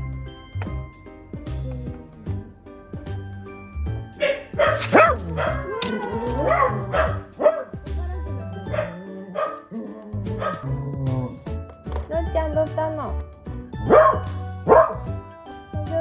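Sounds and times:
background music with steady beat: 0.0 - 16.0
dog barking: 4.2 - 5.7, 6.4 - 7.8, 8.7 - 9.7, 10.4 - 10.7, 13.8 - 15.1
dog wavering calls: 4.6 - 10.7.

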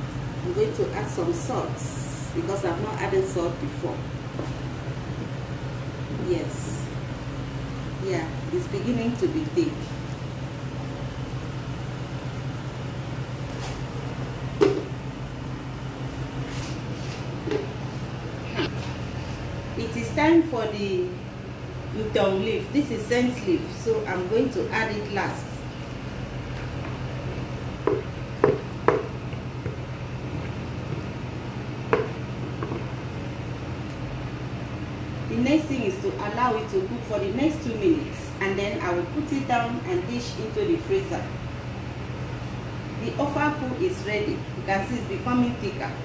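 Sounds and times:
steady low hum: 0.0 - 46.0
spoon knocking on metal pot: 27.8 - 29.8, 31.9 - 32.9.

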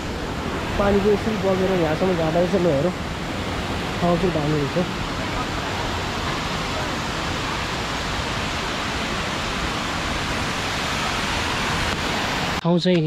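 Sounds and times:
waterfall rushing: 0.0 - 12.6.

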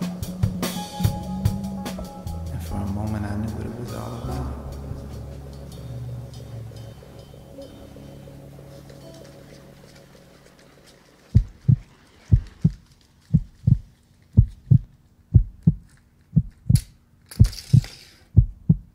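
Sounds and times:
heartbeat thumps: 0.0 - 3.4, 11.3 - 17.8, 18.4 - 18.9
hissing shimmer: 3.9 - 9.8.

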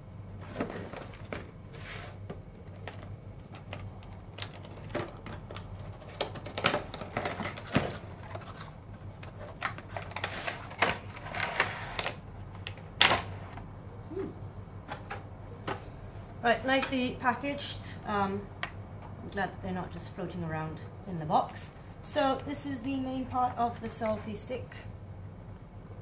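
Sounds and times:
cardboard and plastic clicks and rustles: 2.2 - 13.6.

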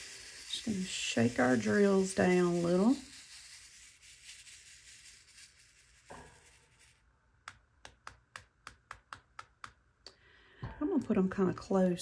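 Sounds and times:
plastic beads rattling in a tray: 0.0 - 7.0.

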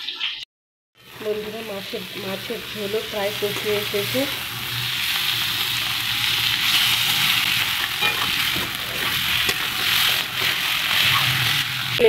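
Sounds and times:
food sizzling in a pan: 1.0 - 12.0
spatula scraping a pan: 7.5 - 11.9.

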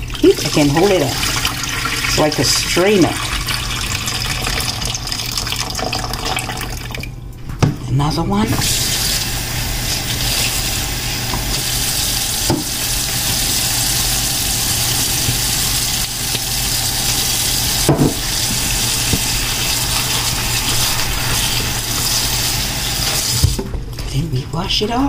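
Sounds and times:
tap water running into bowl: 0.0 - 7.1, 10.0 - 23.6
hand turning cabbage: 9.8 - 23.6.

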